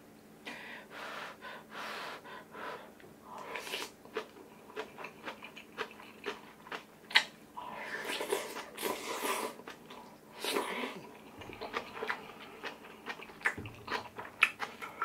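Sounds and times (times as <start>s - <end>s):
chewing and wet mouth smacks: 3.6s - 7.3s, 8.2s - 15.0s.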